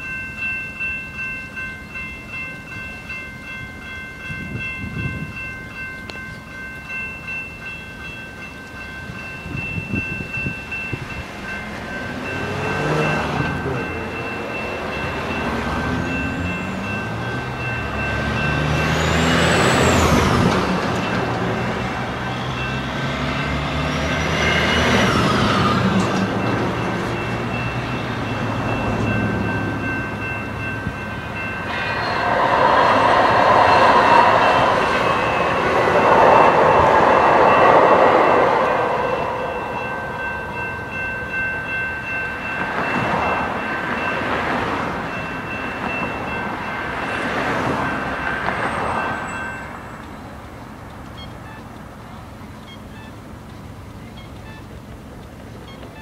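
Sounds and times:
crossing warning bells ringing: 0.0s - 56.0s
light rail train rolling: 0.0s - 56.0s
road traffic passing: 8.8s - 56.0s.

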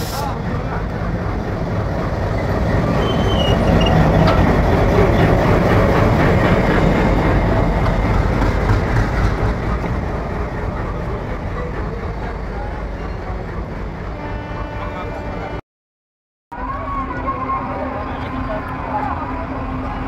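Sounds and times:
train wheels rolling on rails: 0.0s - 14.1s
diesel locomotive engine running: 0.0s - 15.5s.

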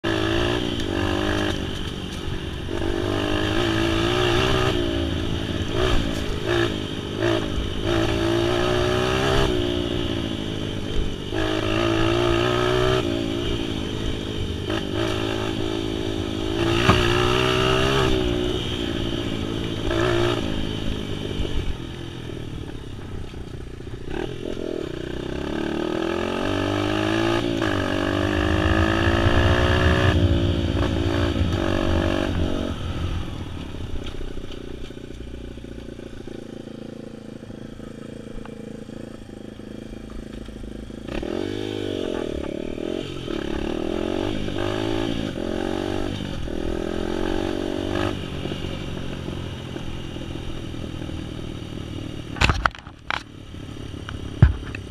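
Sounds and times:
vehicle engine revving: 10.9s - 21.8s, 24.0s - 49.1s.

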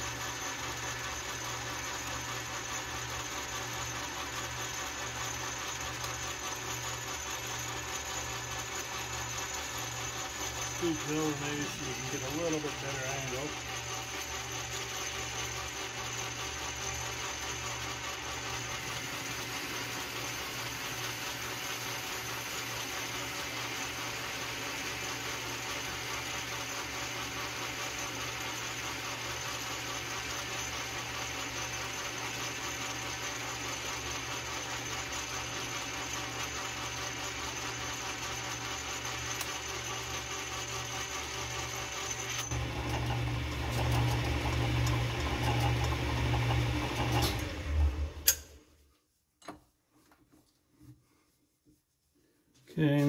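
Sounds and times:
metal lathe running: 0.0s - 48.4s
thin high cutting tone: 10.8s - 14.2s.

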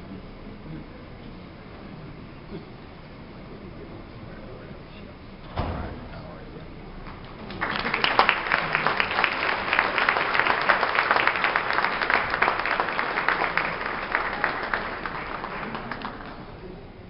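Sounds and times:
audience applauding: 7.0s - 16.8s.

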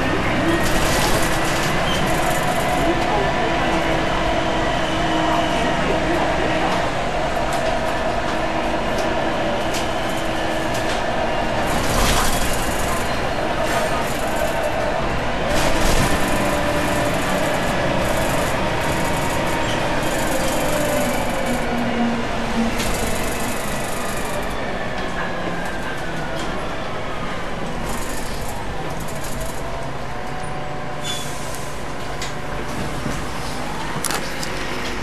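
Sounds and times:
bus drivetrain rumble: 0.0s - 35.0s
gearbox whining: 15.5s - 21.9s.

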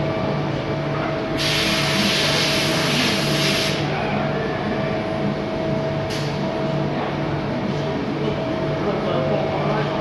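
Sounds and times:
machine hum with whining tone: 0.0s - 10.0s
compressed air hiss: 1.4s - 3.8s.

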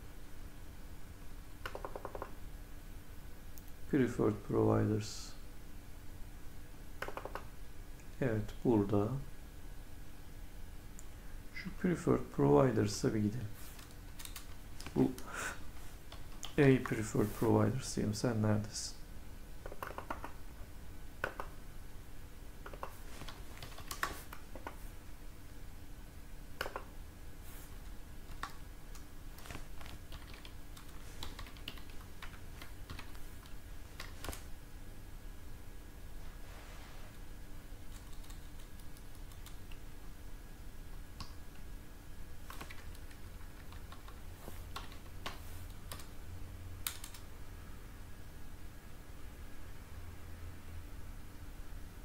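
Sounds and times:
faint steady hum: 0.0s - 52.0s
keyboard key clicks: 1.6s - 2.3s, 7.0s - 7.5s, 19.6s - 20.4s, 21.2s - 21.5s, 26.6s - 26.9s
computer keys and mouse clicking: 1.6s - 2.4s, 7.0s - 7.5s, 13.8s - 15.3s, 16.1s - 17.0s, 19.6s - 20.4s, 21.2s - 21.6s, 22.6s - 24.8s, 26.6s - 26.9s, 28.3s - 34.5s, 37.9s - 39.8s, 41.2s - 41.4s, 42.4s - 46.1s, 46.8s - 47.3s.

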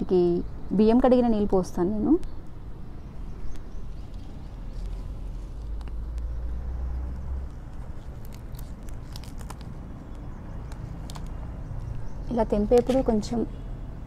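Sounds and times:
leaf rustles: 3.8s - 12.1s
leaves snapping: 7.3s - 12.0s.

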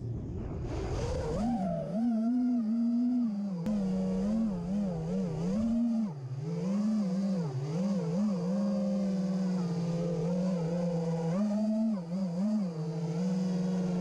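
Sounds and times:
low rumble: 0.0s - 5.9s
drone motors whining: 0.3s - 14.0s.

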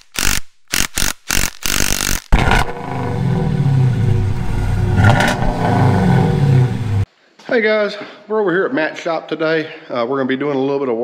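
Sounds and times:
short sharp noise bursts: 0.0s - 7.1s
engine running steadily: 2.4s - 7.1s.

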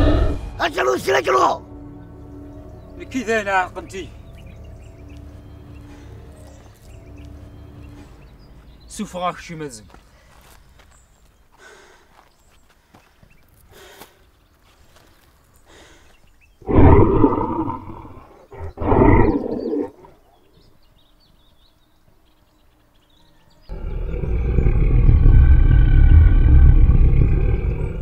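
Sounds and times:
loud animal roaring: 0.0s - 0.4s, 16.6s - 20.2s, 23.7s - 28.0s.

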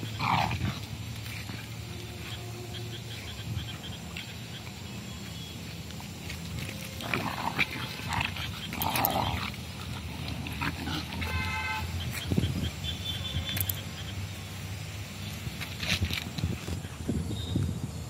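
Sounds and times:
dogs growling and yelping: 0.0s - 1.8s, 7.0s - 11.3s.

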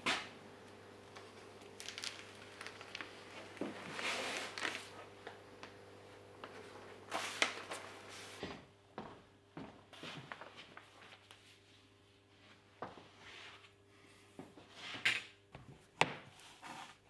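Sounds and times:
rustling scrapes: 1.9s - 5.0s.

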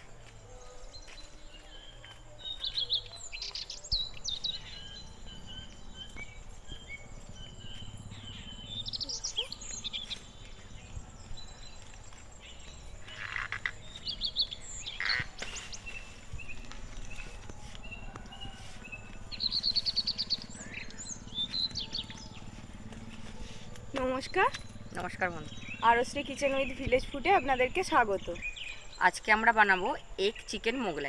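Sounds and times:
birds chirping and calling: 0.0s - 31.0s.

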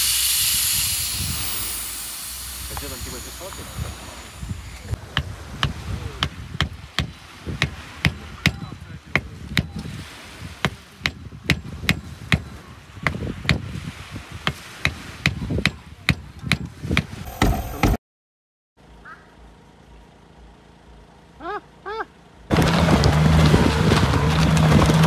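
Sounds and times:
loud car engine: 0.0s - 5.0s, 19.4s - 25.0s
wind on microphone: 0.2s - 17.9s.

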